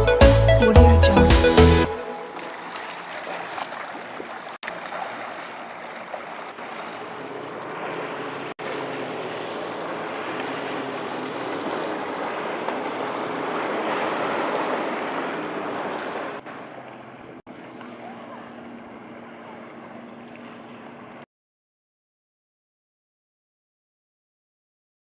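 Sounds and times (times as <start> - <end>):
water lapping and sloshing: 1.8 - 21.3.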